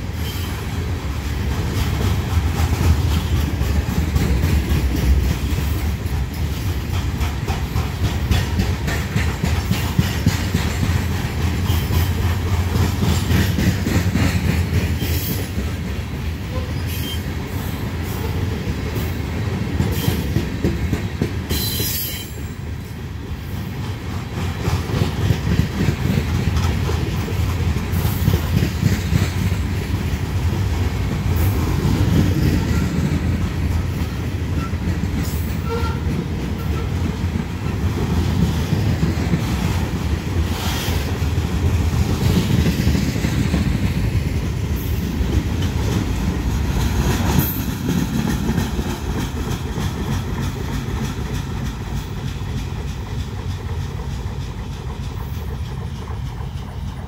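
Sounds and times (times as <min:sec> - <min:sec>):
clickety-clack over rail joints: 0:00.0 - 0:57.0
sharp train clanks: 0:00.0 - 0:57.0
train wheels rumbling on rail: 0:00.0 - 0:57.0.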